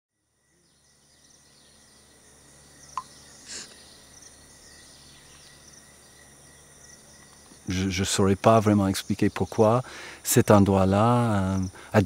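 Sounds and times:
high-pitched insect drone: 0:00.2 - 0:12.0
short hiss: 0:03.0 - 0:03.9.

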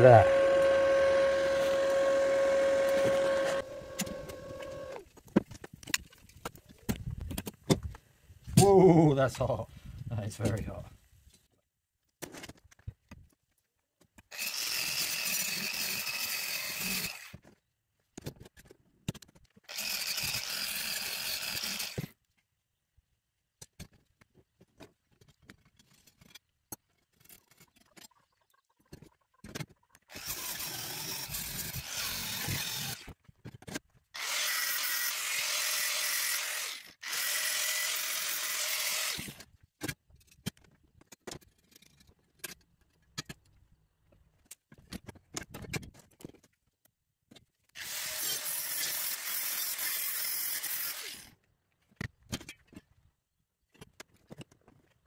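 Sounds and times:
metalworking power tool running: 0:00.0 - 0:05.0.

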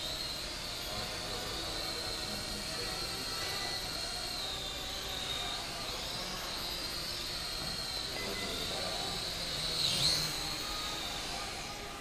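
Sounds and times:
toy drone propellers whining: 0:00.0 - 0:12.0.

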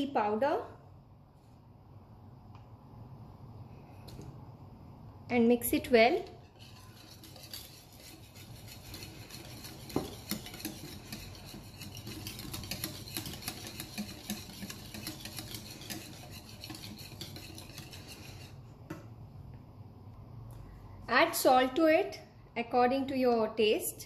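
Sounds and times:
whisk clicking against bowl: 0:06.6 - 0:18.5.

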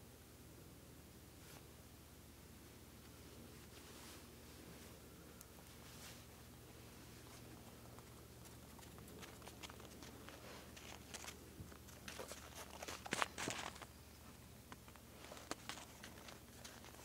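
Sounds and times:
steady low hum: 0:00.0 - 0:17.0
small clicks and crinkling: 0:07.2 - 0:17.0.

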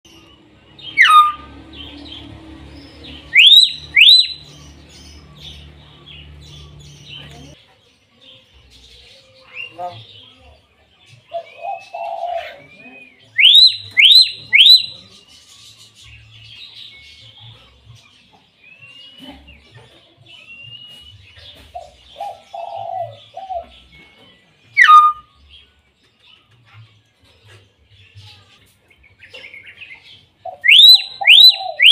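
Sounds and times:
myna bird whistling calls: 0:00.8 - 0:02.3, 0:03.0 - 0:05.2, 0:11.5 - 0:15.1, 0:24.7 - 0:25.3, 0:30.5 - 0:31.9.

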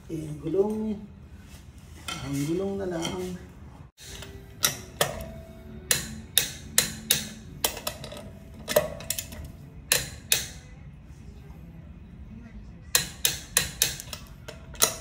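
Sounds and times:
lug wrench clinking on lug nuts: 0:04.0 - 0:10.6.

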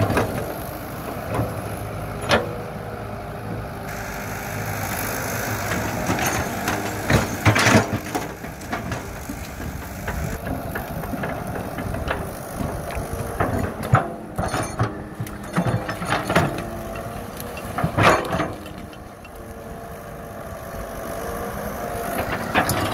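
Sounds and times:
excavator diesel engine running: 0:00.0 - 0:22.9.

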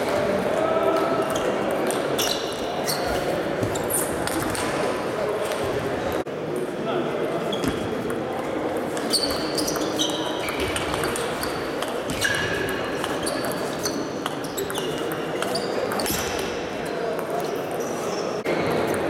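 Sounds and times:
table tennis balls hitting bats: 0:07.6 - 0:16.5.

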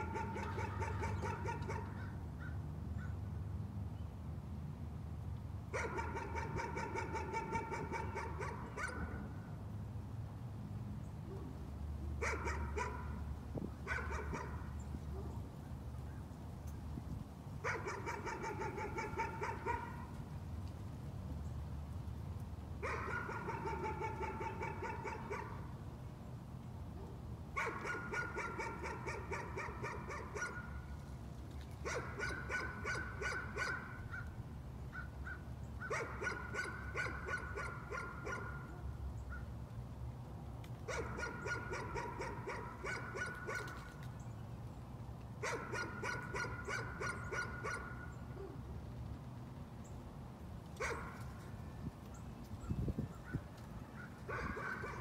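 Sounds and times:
dog barking rapidly: 0:00.0 - 0:02.0, 0:05.7 - 0:09.2, 0:12.2 - 0:13.2, 0:13.9 - 0:14.7, 0:17.6 - 0:20.0, 0:22.8 - 0:25.6, 0:27.6 - 0:30.7, 0:31.8 - 0:34.2, 0:35.8 - 0:38.7, 0:40.9 - 0:43.8, 0:45.4 - 0:48.0, 0:50.8 - 0:51.2, 0:54.3 - 0:55.0.

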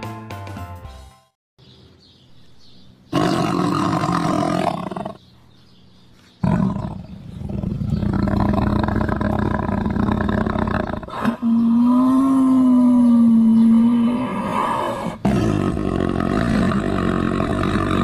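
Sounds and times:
big cats roaring and growling: 0:03.1 - 0:05.2, 0:06.4 - 0:18.0.

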